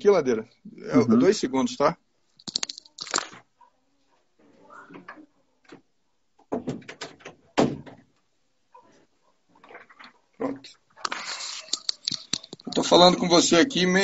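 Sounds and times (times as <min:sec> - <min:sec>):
door clicks and knocks: 0:06.5 - 0:08.1.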